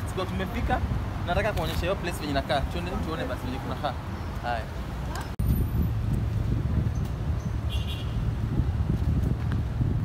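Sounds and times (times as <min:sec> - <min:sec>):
street traffic rumble: 0:00.0 - 0:10.0
wind on the microphone: 0:05.2 - 0:10.0.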